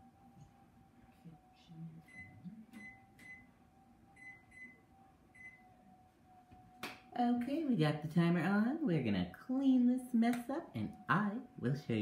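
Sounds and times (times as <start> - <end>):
faint steady hum: 0.0 - 12.0
kitchen timer keypad beeps: 2.1 - 3.5, 4.2 - 4.8, 5.4 - 5.6.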